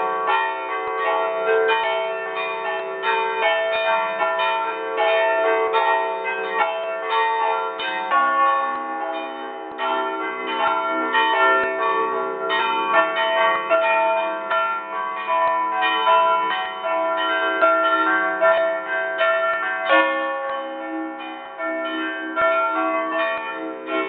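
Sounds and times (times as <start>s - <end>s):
church bells pealing: 0.0s - 24.0s.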